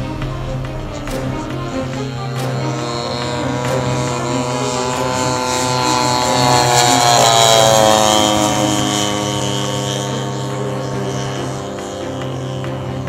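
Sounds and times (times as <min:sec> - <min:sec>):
model plane engine fly-by: 0:00.0 - 0:13.0.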